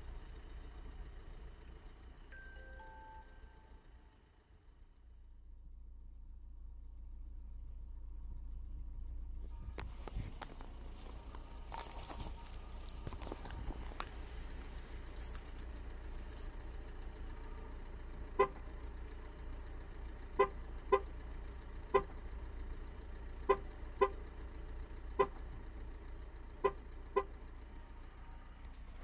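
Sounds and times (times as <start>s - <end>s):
car engine idling: 0.0s - 29.0s
car horn chirps: 17.3s - 18.8s, 20.3s - 21.2s, 21.8s - 22.2s, 23.4s - 24.4s, 25.1s - 25.6s, 26.6s - 29.0s.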